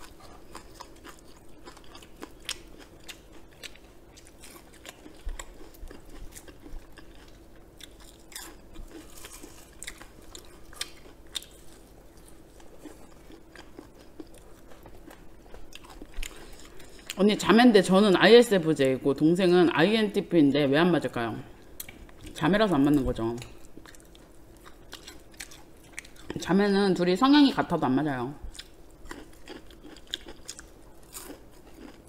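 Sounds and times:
chewing: 0:00.0 - 0:17.2, 0:23.4 - 0:26.4, 0:28.5 - 0:32.0
fried chicken crunching: 0:00.0 - 0:17.2, 0:28.6 - 0:32.0.

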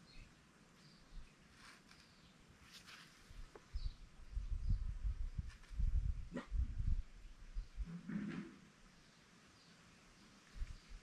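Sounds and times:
faint bird chirps: 0:00.0 - 0:05.2
soft hiss: 0:00.0 - 0:05.9.

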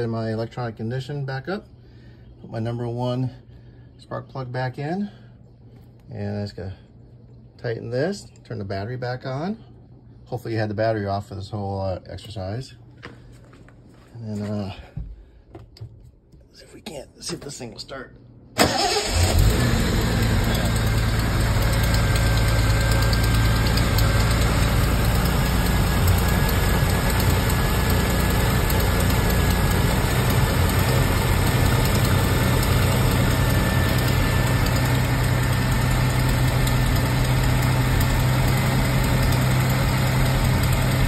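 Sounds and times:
car engine idling: 0:18.6 - 0:41.0.

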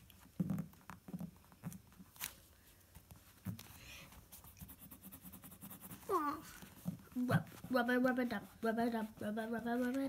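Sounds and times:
scratchy rustle on paper: 0:01.6 - 0:10.0
soft thumps and pencil taps: 0:02.9 - 0:10.0.

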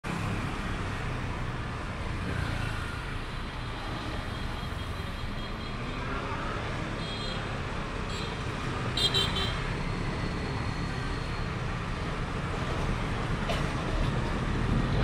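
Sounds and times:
traffic noise: 0:00.0 - 0:15.0
bus engine drone: 0:09.7 - 0:15.0.

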